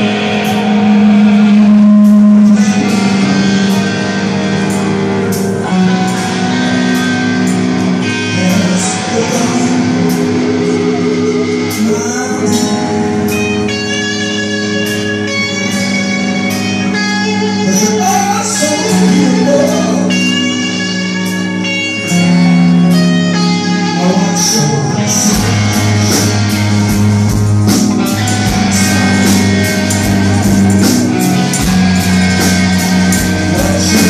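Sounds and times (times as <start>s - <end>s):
steady drum beat: 0.0s - 13.6s, 25.2s - 34.0s
electric guitar chords: 0.0s - 34.0s.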